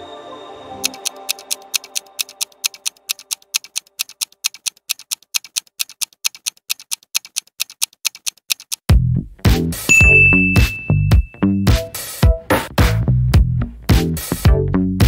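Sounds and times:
clock ticking: 0:00.8 - 0:08.9.

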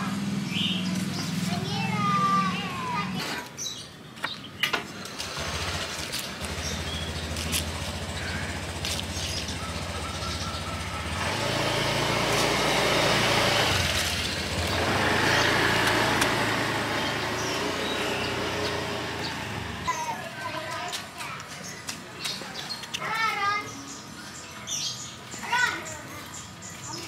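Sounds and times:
passing vehicles: 0:00.0 - 0:21.5
vehicle engine running: 0:05.0 - 0:20.0.

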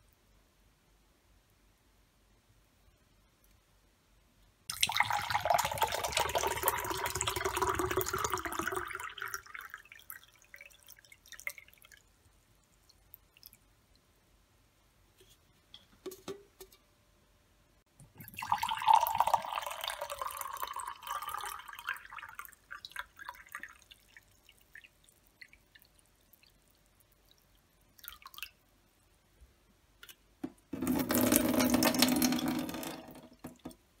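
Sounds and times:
water pouring into a glass: 0:04.7 - 0:12.0, 0:18.2 - 0:26.5, 0:28.0 - 0:28.5, 0:30.8 - 0:33.5
water dripping: 0:04.7 - 0:14.1, 0:18.0 - 0:28.7.

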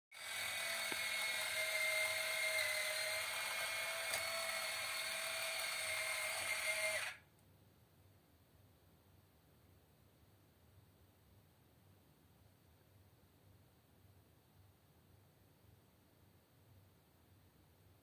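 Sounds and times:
toy motors whirring: 0:00.2 - 0:07.2.

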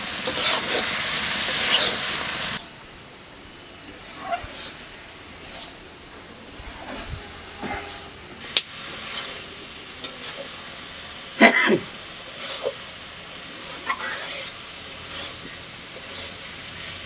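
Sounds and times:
food sizzling in a wok: 0:00.0 - 0:02.7, 0:03.9 - 0:05.9, 0:06.5 - 0:17.0
metal spatula scraping a pan: 0:00.2 - 0:02.1, 0:04.0 - 0:04.8, 0:05.4 - 0:05.8, 0:06.5 - 0:08.2, 0:08.9 - 0:10.5, 0:12.3 - 0:12.8, 0:13.6 - 0:17.0.

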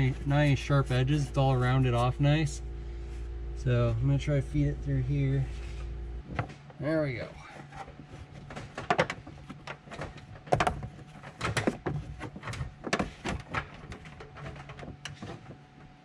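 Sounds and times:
wire rustling and scraping: 0:05.4 - 0:16.0
wire knocking against trim: 0:07.7 - 0:15.6.

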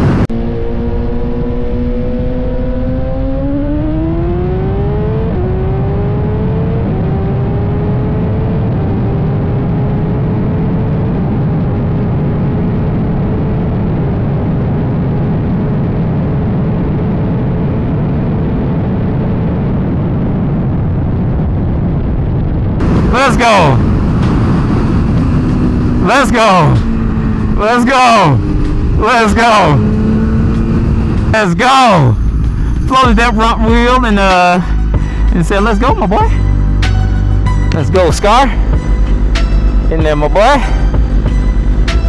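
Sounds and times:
motorcycle engine accelerating: 0:00.0 - 0:21.7, 0:22.6 - 0:42.0
heavy wind rush: 0:00.0 - 0:42.0.

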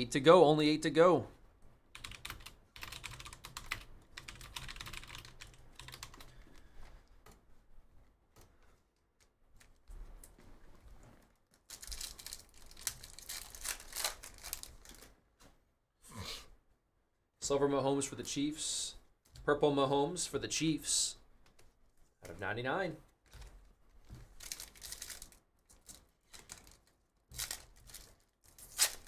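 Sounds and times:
computer keyboard typing: 0:01.9 - 0:06.4.

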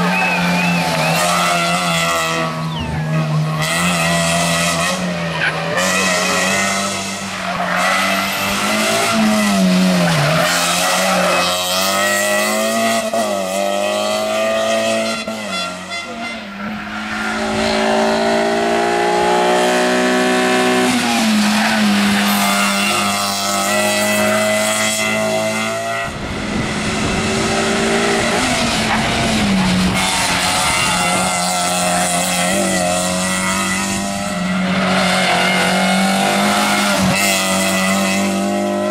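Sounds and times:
rally car engines revving: 0:00.0 - 0:38.9.

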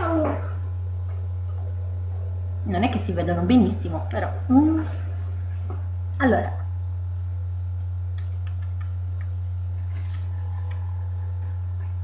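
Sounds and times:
low hum: 0:00.0 - 0:12.0
faint small clicks: 0:08.1 - 0:09.4.

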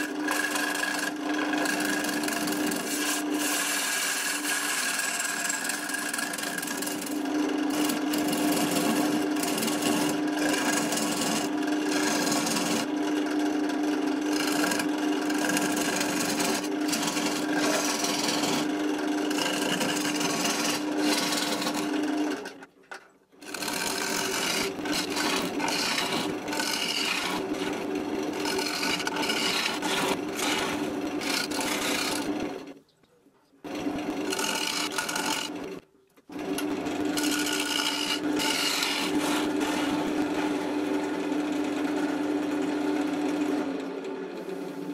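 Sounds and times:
wood lathe gouge scraping: 0:00.0 - 0:22.6, 0:23.4 - 0:32.7, 0:33.7 - 0:35.8, 0:36.4 - 0:40.6.

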